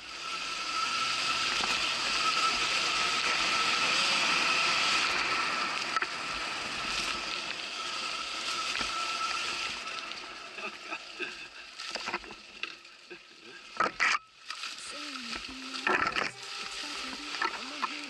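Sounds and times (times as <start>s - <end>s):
electric motorcycle motor whine: 0.0s - 18.0s.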